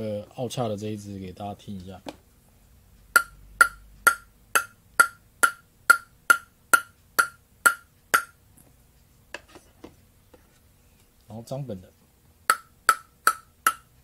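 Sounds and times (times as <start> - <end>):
table tennis ball bouncing on blade: 3.1 - 8.4, 12.5 - 14.0.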